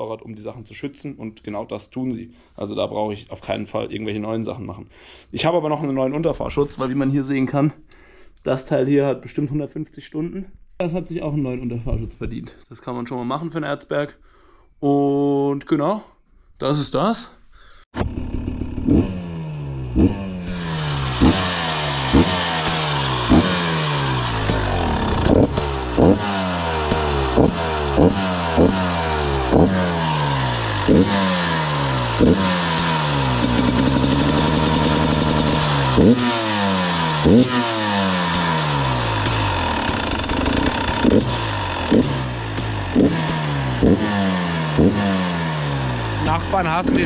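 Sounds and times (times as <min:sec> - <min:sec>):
dirt bike engine revving: 0:18.0 - 0:47.0.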